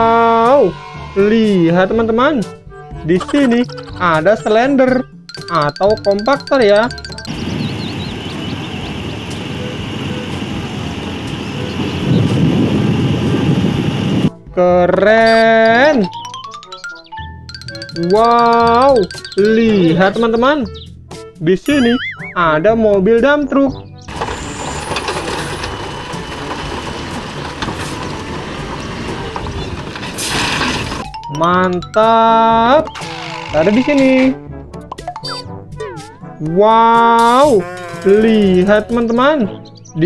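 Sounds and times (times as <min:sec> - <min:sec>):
road roller diesel engine rumbling: 0:05.3 - 0:14.3, 0:24.1 - 0:31.8
rocks clattering out of truck bed: 0:24.1 - 0:31.1.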